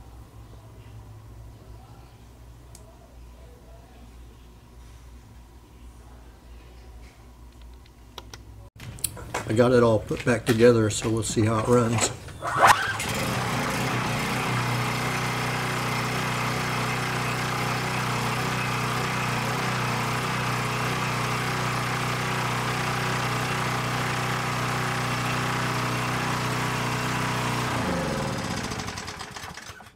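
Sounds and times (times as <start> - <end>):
engine winding down: 12.4 - 29.9
generator engine running: 12.4 - 29.9.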